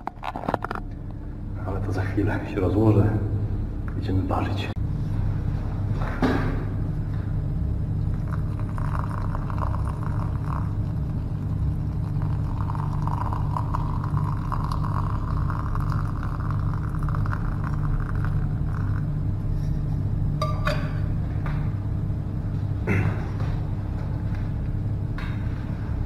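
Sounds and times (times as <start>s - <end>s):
hot water pouring into cup: 8.0s - 19.2s.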